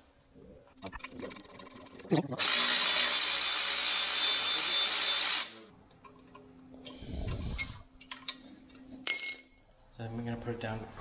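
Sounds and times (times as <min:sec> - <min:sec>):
cordless power tool running: 0:02.4 - 0:05.6.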